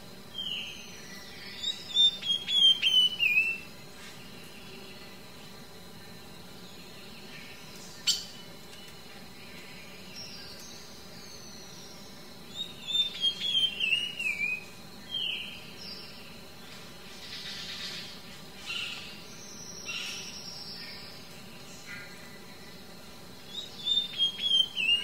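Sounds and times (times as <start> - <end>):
small birds singing: 0.0 - 25.0.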